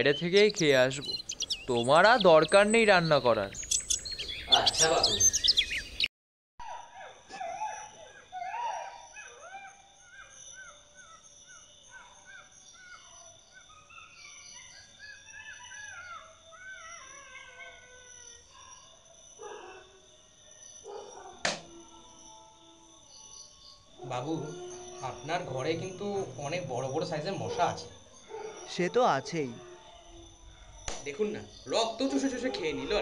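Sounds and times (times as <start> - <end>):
wavering animal calls: 0.0 - 6.1, 6.8 - 33.0
high insect drone: 8.1 - 33.0
sharp knock: 21.4 - 21.7.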